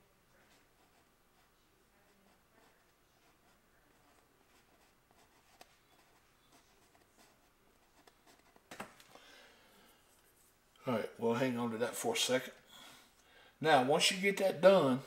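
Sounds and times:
brush scratching on canvas: 0.4s - 8.6s.

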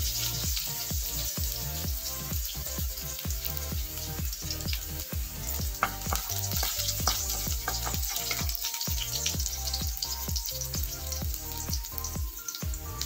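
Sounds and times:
wooden spatula in wok: 0.0s - 10.6s
background music with steady beat: 0.0s - 13.0s
onion sizzling in hot oil: 0.0s - 13.0s.

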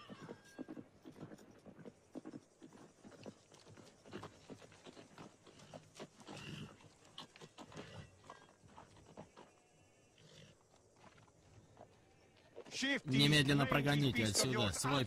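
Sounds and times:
animal call: 0.0s - 0.8s
hooves knocking on ground: 0.0s - 14.6s.

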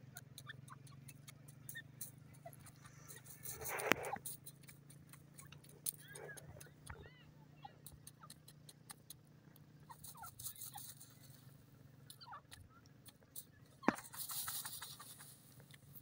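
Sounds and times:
light scratching clicks: 0.1s - 16.0s
rustling in dust: 13.9s - 16.0s.

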